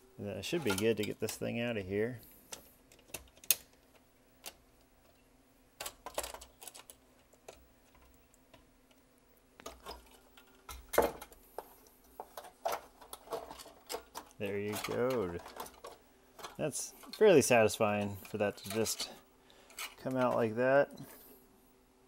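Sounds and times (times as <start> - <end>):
parts clattering: 0.4 - 9.0, 9.6 - 21.5
plastic and metal parts clicking: 2.5 - 4.6, 5.8 - 9.0.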